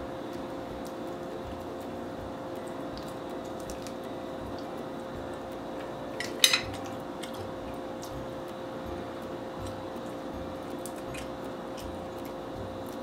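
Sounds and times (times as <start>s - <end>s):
steady room hum: 0.0s - 13.0s
faint eating clicks: 0.1s - 13.0s
chopsticks clacking on plate: 6.2s - 7.5s.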